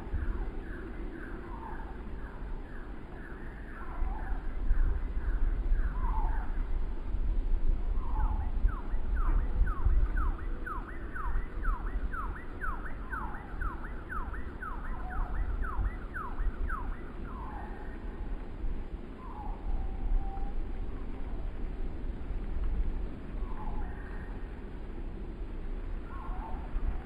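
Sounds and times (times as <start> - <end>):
wind rumbling on microphone: 0.0 - 27.0
downward whistled bird calls: 2.7 - 6.6, 8.0 - 18.0, 19.2 - 20.6.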